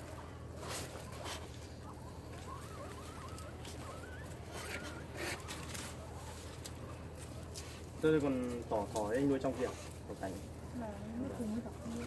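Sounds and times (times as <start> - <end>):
whistle-like animal call: 2.4 - 6.3.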